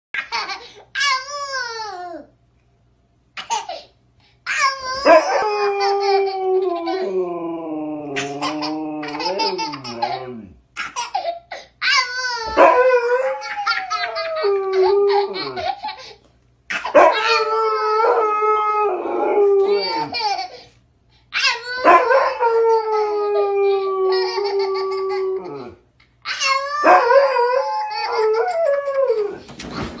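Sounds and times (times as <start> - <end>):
dog howling: 5.0 - 10.6, 12.4 - 15.7, 17.0 - 20.2, 21.8 - 25.8, 26.7 - 29.4
toddler giggling: 8.2 - 11.4, 19.6 - 20.6.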